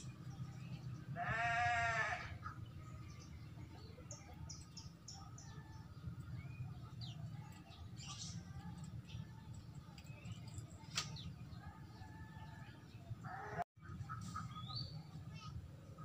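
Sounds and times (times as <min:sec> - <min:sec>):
bleat-like animal call: 0:01.2 - 0:02.4.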